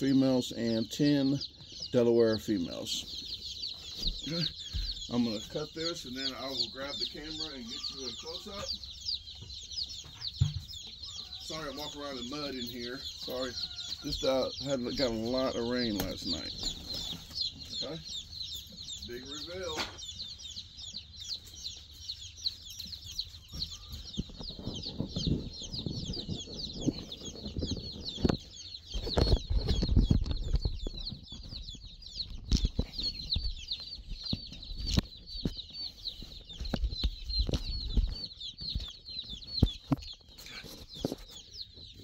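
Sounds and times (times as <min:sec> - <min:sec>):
chicks peeping: 0:00.0 - 0:42.0.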